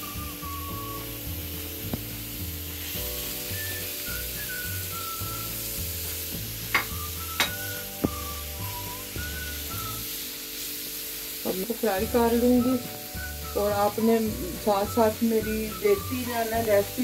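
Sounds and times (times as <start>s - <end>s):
onion sizzling in oil: 0.0s - 17.0s
knocks against pan: 6.7s - 7.6s.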